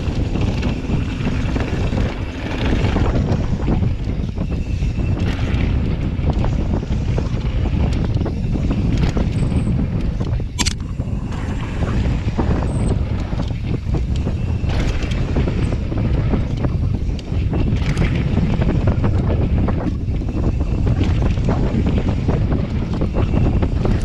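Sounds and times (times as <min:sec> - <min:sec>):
tyres rumbling on dirt: 0:00.0 - 0:04.2
bike rattles and knocks: 0:00.0 - 0:24.0
wind buffeting microphone: 0:00.0 - 0:24.0.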